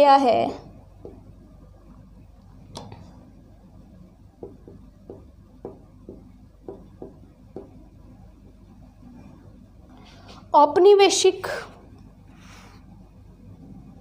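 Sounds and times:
marker tapping and scraping on board: 4.4s - 7.8s.

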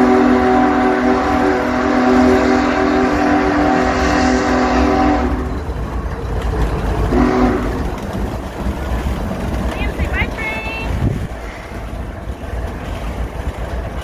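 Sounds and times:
locomotive chord horn blasts: 0.0s - 5.6s, 7.1s - 7.9s
passing train rumble: 0.0s - 14.0s.

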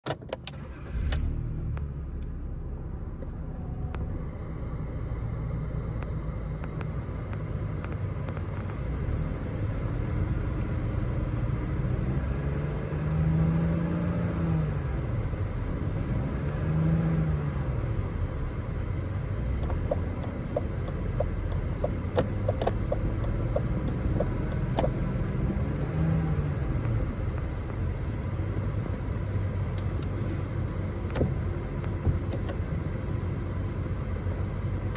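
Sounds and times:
car engine idling: 19.5s - 25.1s.

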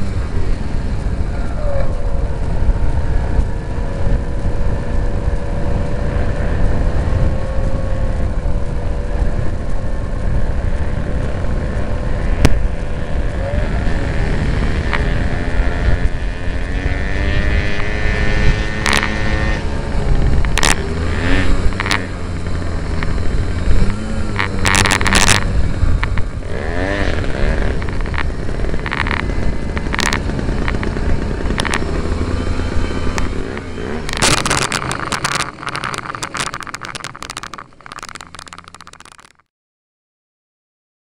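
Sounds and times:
low electric motor hum: 0.0s - 24.7s, 25.4s - 36.7s
wind rush: 0.0s - 38.3s
wheels rattling over gravel: 0.0s - 39.4s
knocks and rattles: 20.3s - 26.3s, 27.0s - 39.4s.

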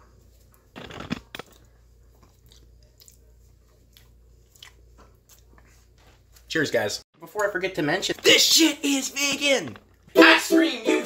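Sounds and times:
chewing and mouth clicks: 0.8s - 5.8s.

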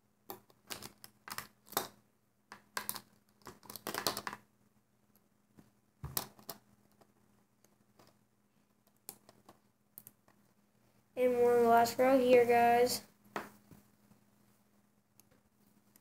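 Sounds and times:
plastic pieces clicking: 0.3s - 4.4s.

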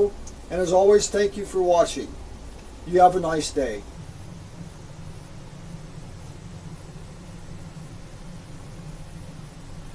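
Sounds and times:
faint hiss: 0.0s - 9.9s
steady low hum: 0.0s - 9.9s.

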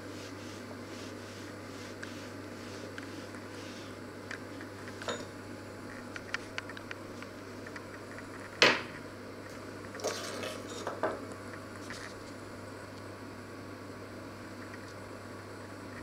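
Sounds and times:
ceramic dishes clinking: 5.0s - 5.3s.

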